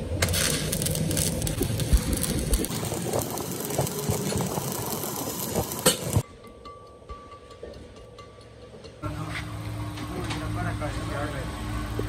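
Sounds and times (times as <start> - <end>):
low hum: 0.0 - 6.2
welding arc crackling: 0.0 - 6.2.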